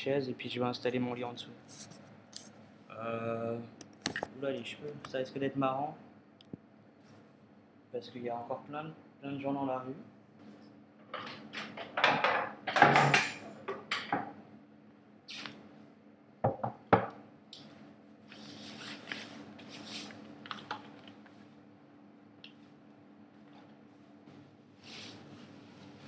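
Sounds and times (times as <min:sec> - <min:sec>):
refrigerator hum: 0:00.0 - 0:26.0
things clattering on tiled floor: 0:11.1 - 0:14.3.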